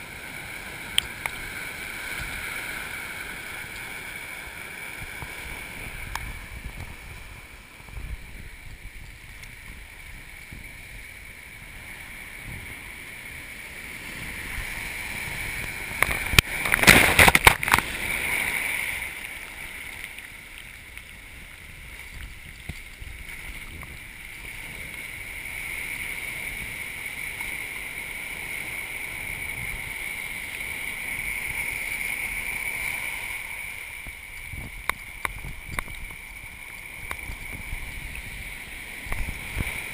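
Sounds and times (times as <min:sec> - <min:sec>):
surf washing over rock: 0:00.0 - 0:39.9
water splashing: 0:13.0 - 0:26.4.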